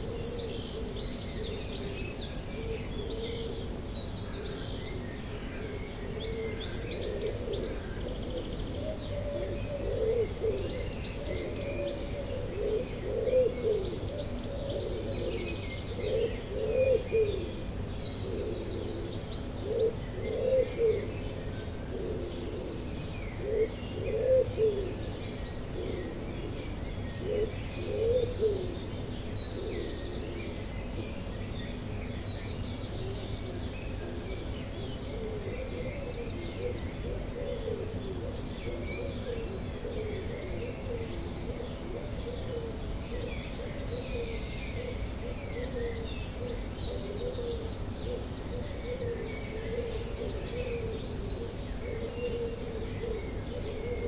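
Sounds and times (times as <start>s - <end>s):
songbirds chirping and trilling: 0.0s - 54.0s
pigeon cooing: 6.2s - 17.5s, 18.2s - 21.1s, 21.9s - 25.0s, 27.2s - 28.8s, 35.1s - 54.0s.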